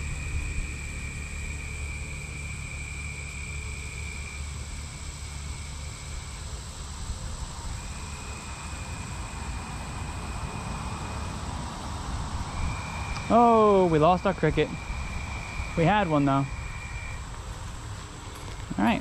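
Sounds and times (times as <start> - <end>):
steady low rumble: 0.0 - 19.0
high thin tones: 12.6 - 17.4.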